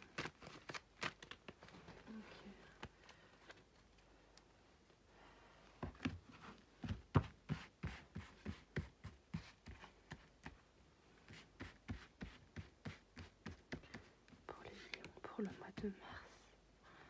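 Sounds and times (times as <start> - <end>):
cards being shuffled: 0.0 - 4.0.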